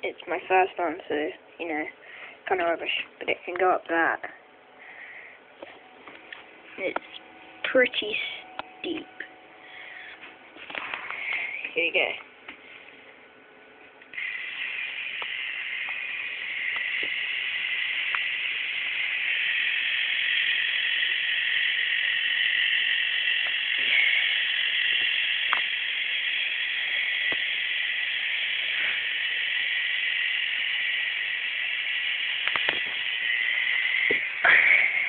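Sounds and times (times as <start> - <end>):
toy motor and gears whirring: 14.1 - 35.0.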